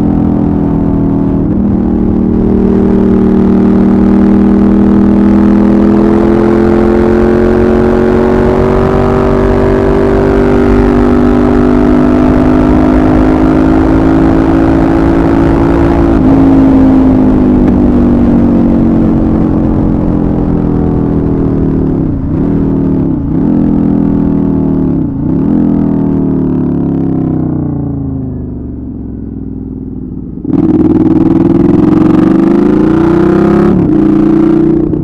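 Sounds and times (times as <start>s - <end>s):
motorcycle engine accelerating: 0.0s - 35.0s.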